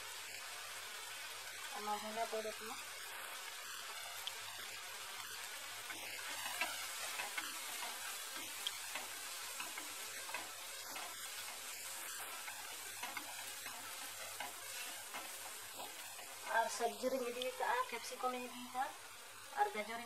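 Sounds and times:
tomatoes sizzling in oil: 0.0 - 20.0
wooden spatula scraping and tapping: 6.3 - 16.5.

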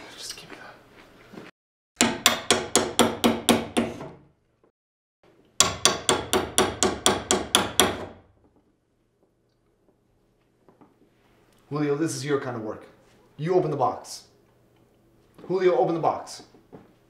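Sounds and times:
hammer banging on plywood crate: 2.0 - 4.2, 5.6 - 8.2.

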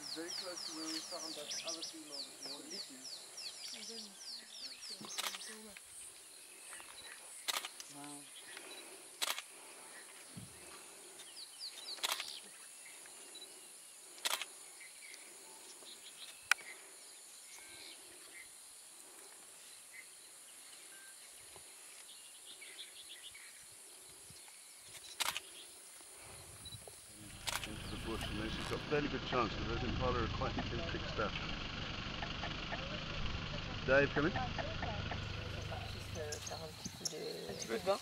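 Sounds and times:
faint bird chirps: 0.0 - 18.6, 19.2 - 28.9
insect hiss: 2.7 - 29.2
sharp clicks: 5.0 - 5.8, 7.4 - 9.5, 11.9 - 12.5, 27.4 - 28.8, 31.3 - 33.1.

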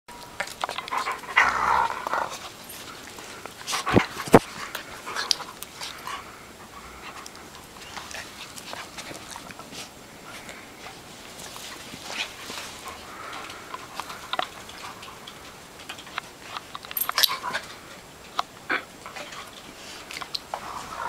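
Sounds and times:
claws scrabbling clicks: 0.2 - 6.2, 6.9 - 21.0
dogs scuffling: 0.2 - 21.0
dog panting: 2.1 - 15.5.

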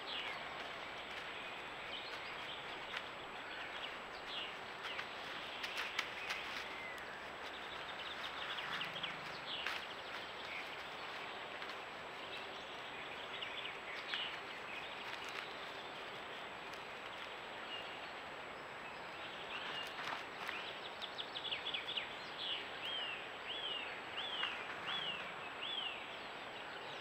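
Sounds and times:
soft rustles: 0.0 - 17.5
microphone hiss: 0.0 - 27.0.

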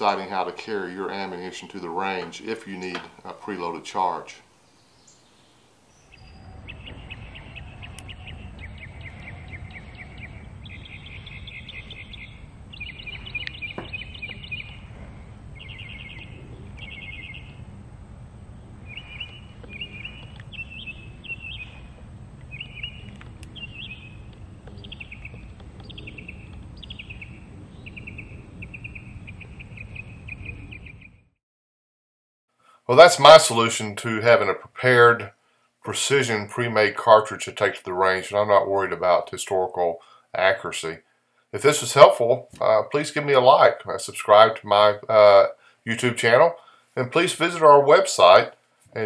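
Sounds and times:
buzzy chirping trills: 0.0 - 31.1
steady low rumble: 6.1 - 31.2.

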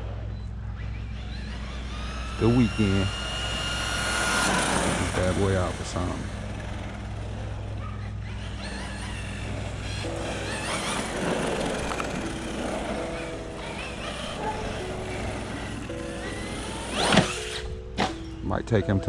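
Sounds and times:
rc truck motor whining: 0.0 - 18.4
background music with held notes: 9.2 - 19.0.

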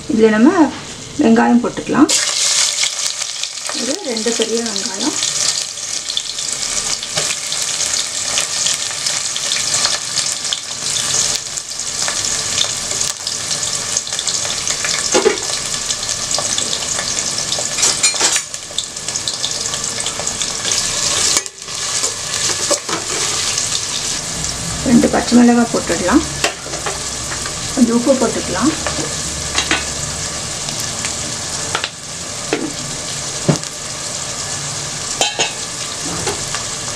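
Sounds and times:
onions sizzling in hot oil: 0.1 - 36.9
metal ladle scraping a pot: 22.4 - 23.6.

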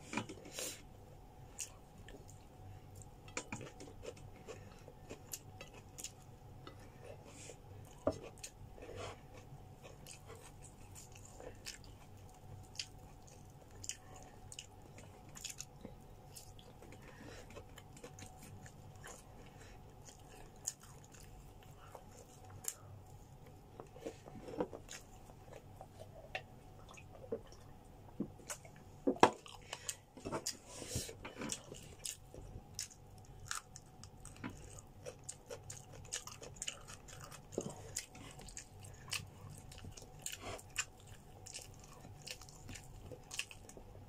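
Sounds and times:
faint steady hum: 0.0 - 44.0
chewing smacks and clicks: 31.5 - 43.8.

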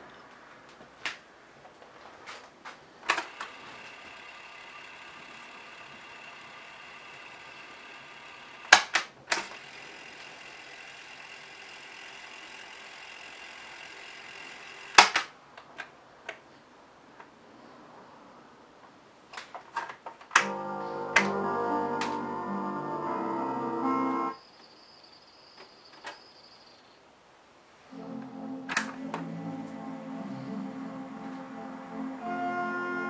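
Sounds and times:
tape mechanism whirring: 3.0 - 15.4
cassette keys clunking: 20.4 - 22.3.

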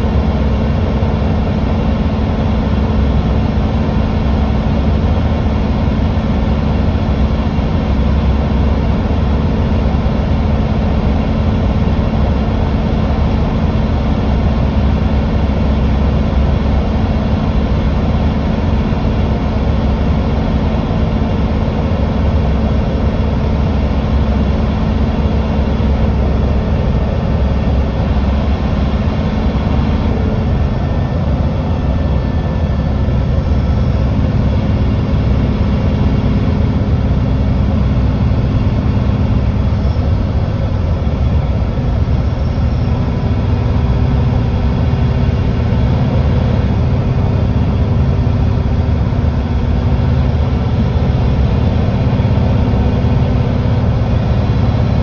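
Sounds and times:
bus engine drone: 0.0 - 55.0
road noise: 0.0 - 55.0.

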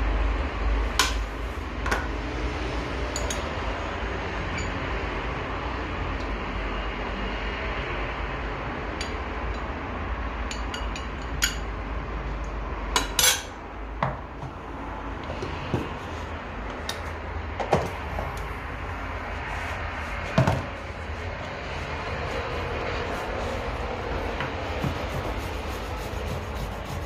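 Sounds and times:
steady hiss and hum: 2.8 - 27.0.

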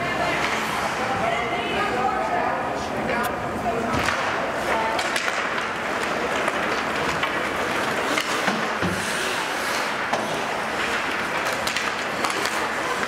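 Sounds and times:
hockey sticks and puck clacking: 0.3 - 1.0, 3.9 - 13.0
skates scraping ice: 4.6 - 13.0.

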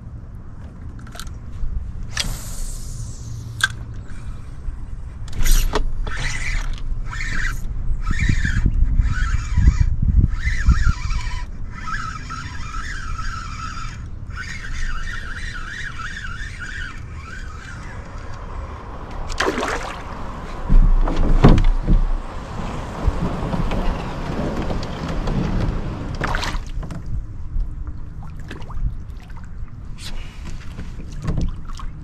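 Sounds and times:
wind rumble on microphone: 0.0 - 32.0
spinning reel cranking: 5.4 - 18.4
fish splashing at surface: 19.3 - 20.2.

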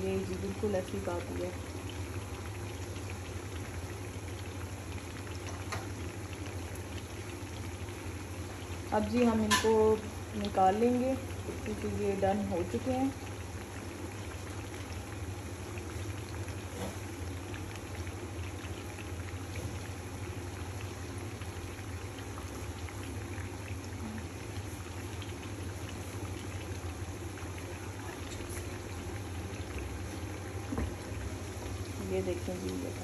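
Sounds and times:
oil sizzling and popping: 0.0 - 33.0.

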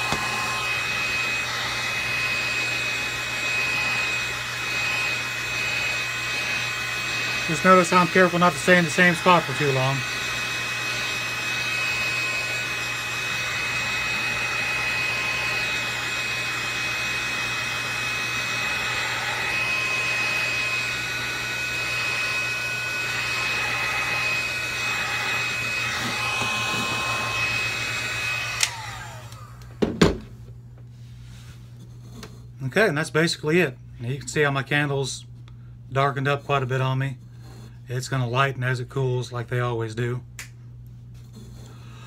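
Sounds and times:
heat gun blowing air with whine: 0.0 - 30.2.

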